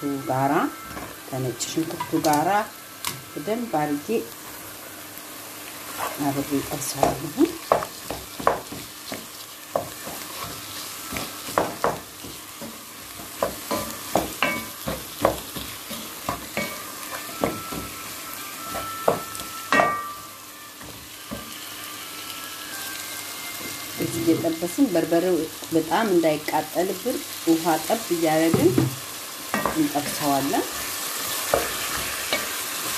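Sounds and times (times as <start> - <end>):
meat sizzling in hot oil: 0.0 - 32.9
wooden spoon scraping a pot: 5.9 - 7.0.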